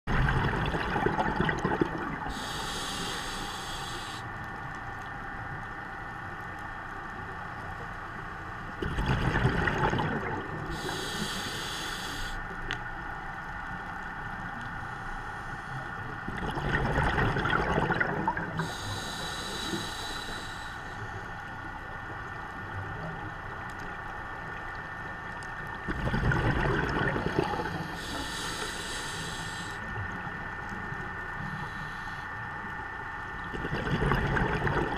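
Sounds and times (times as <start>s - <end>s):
exhaled bubbles rushing: 0.1s - 2.3s, 8.8s - 10.7s, 16.2s - 18.6s, 25.8s - 27.8s, 33.4s - 34.9s
regulator inhale hiss: 2.2s - 4.5s, 10.6s - 12.6s, 14.7s - 16.1s, 18.6s - 21.7s, 27.5s - 30.0s, 31.3s - 32.8s.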